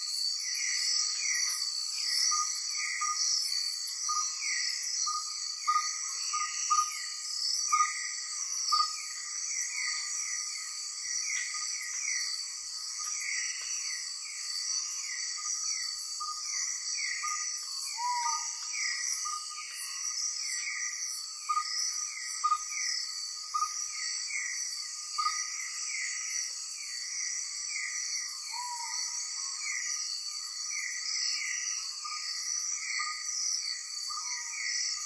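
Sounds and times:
short insect chirps: 0.0 - 35.0
high-pitched shrill of insects: 13.0 - 24.6, 27.7 - 30.2.

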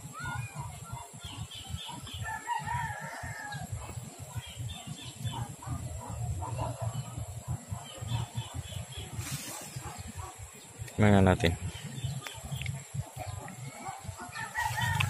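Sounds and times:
rooster crowing: 2.2 - 3.7, 14.4 - 15.0.

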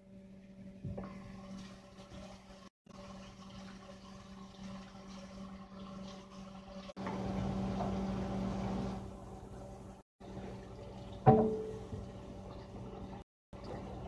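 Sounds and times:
sandwich frying in a skillet: 1.2 - 9.1.

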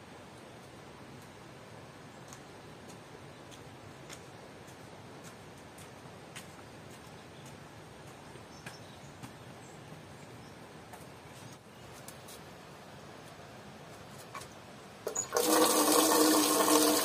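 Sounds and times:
outdoor hiss: 0.0 - 17.0
footsteps on concrete: 2.3 - 10.1.

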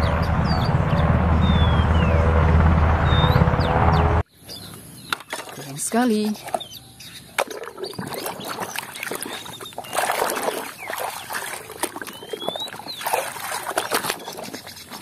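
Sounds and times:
water sloshing in plastic basin: 7.4 - 15.0.

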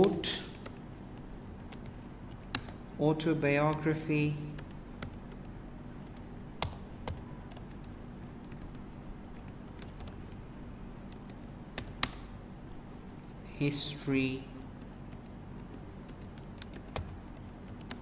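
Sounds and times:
computer keyboard keys clicking: 0.0 - 2.8, 4.6 - 10.3, 11.1 - 12.3, 14.6 - 18.0.

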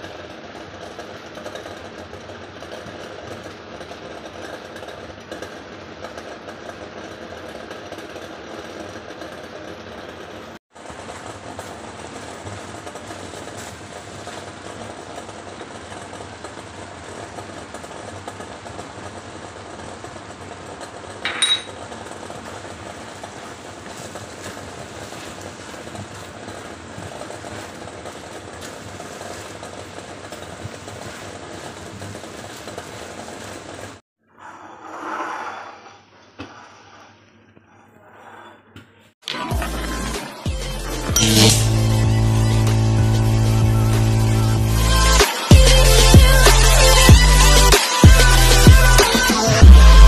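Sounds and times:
steady hum: 39.5 - 50.0.

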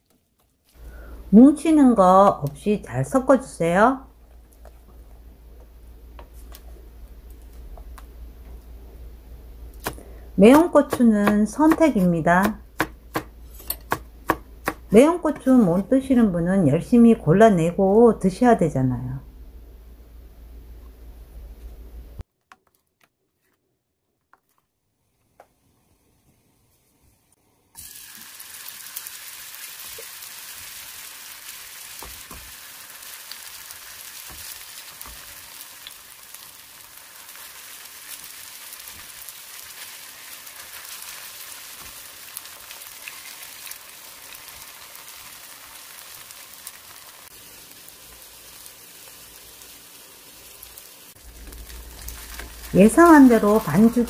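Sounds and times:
batter sizzling in hot oil: 27.8 - 54.0.

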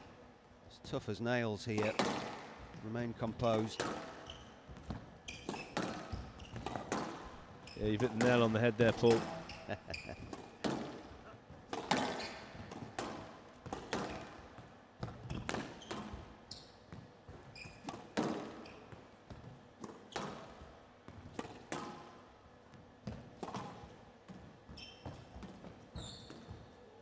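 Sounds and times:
squash ball hits: 1.8 - 2.8, 3.6 - 9.5, 10.3 - 11.1, 11.7 - 14.4, 15.0 - 16.1, 17.8 - 18.6
shoe squeaks on court: 4.1 - 4.6, 5.2 - 8.0, 9.2 - 10.5, 11.9 - 12.6, 15.2 - 16.9, 17.5 - 18.0, 18.6 - 18.9, 24.7 - 26.6.

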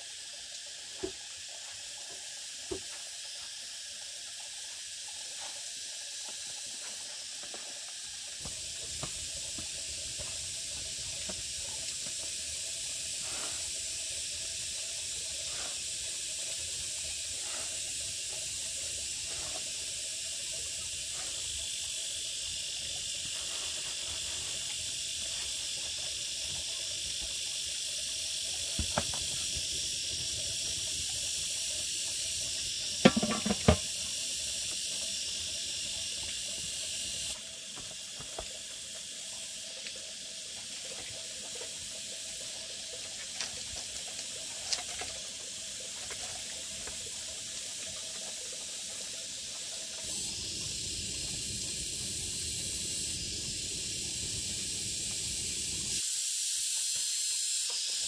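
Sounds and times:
steam hissing from pan: 0.0 - 58.0
metal clanks of pan lid: 33.1 - 33.8.

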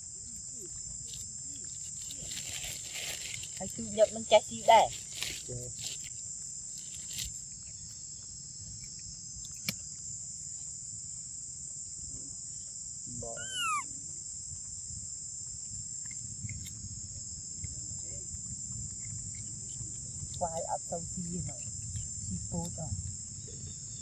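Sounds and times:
insects droning: 0.0 - 24.0
short high-pitched arching call: 13.4 - 13.9.

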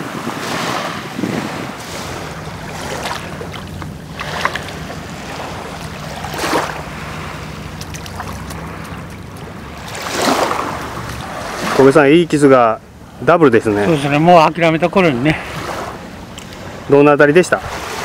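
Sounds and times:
wind on microphone: 0.0 - 11.8
waves washing onto beach: 0.0 - 18.0
low steady hum: 1.7 - 17.0.

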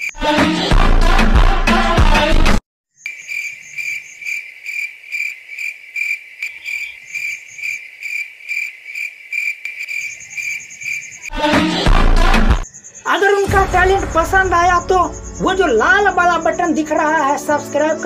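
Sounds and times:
crickets chirping: 2.9 - 11.4, 12.6 - 18.0.

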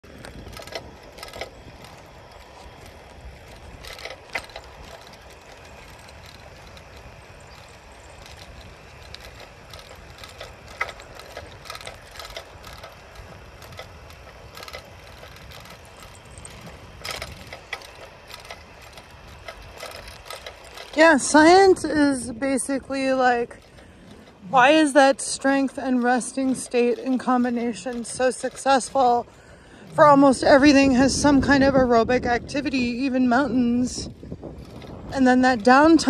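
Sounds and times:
bike clicks and rattles: 0.0 - 36.0
wind and tyre rumble: 0.0 - 36.0.

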